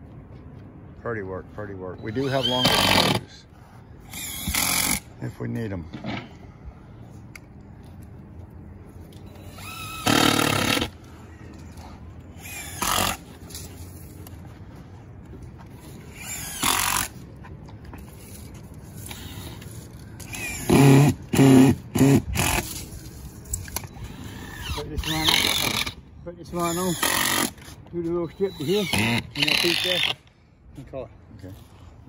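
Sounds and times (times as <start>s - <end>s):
cordless drill driving screws: 2.0s - 3.2s, 4.1s - 5.0s, 9.4s - 10.9s, 12.4s - 13.2s, 16.1s - 17.1s, 20.2s - 22.8s, 24.2s - 26.0s, 26.6s - 27.6s, 28.3s - 30.2s.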